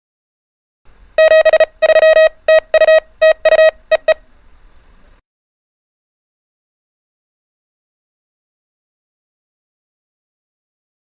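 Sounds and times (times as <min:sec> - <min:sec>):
morse code beeps: 0:01.2 - 0:04.2.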